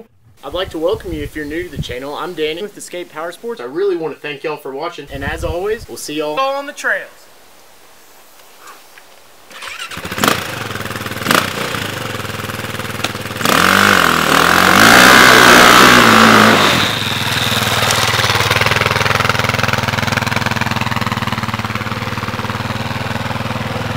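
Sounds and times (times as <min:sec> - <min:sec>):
dirt bike engine: 0:09.5 - 0:23.9
rear wheel spinning in dirt: 0:09.5 - 0:23.9.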